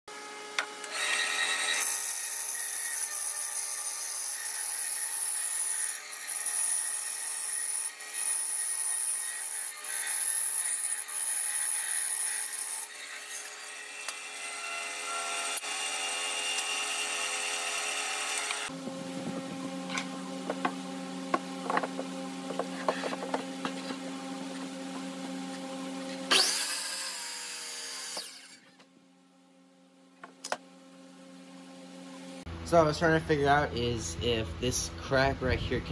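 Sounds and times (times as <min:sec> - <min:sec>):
bandsaw cutting wood: 0:00.8 - 0:18.7, 0:25.5 - 0:28.7
bandsaw running: 0:00.8 - 0:20.7, 0:25.2 - 0:28.7.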